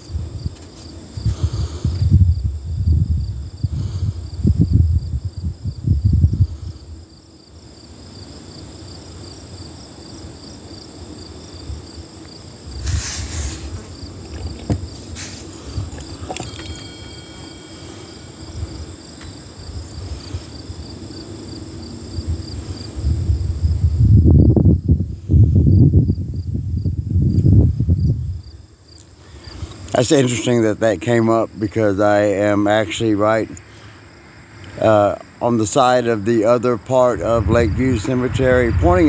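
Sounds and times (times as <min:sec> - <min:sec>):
insects chirping: 0:00.0 - 0:39.0
low rumbling on microphone: 0:01.2 - 0:06.8, 0:36.6 - 0:39.0.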